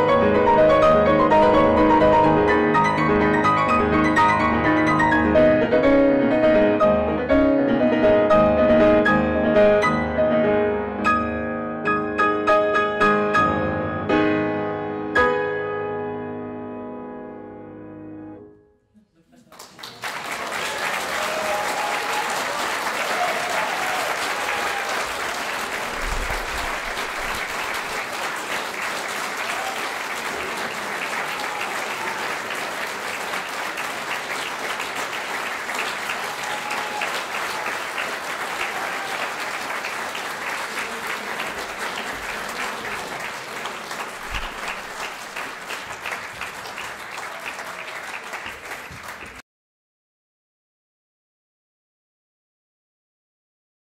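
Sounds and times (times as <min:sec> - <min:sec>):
audience applauding: 0:19.3 - 0:49.4.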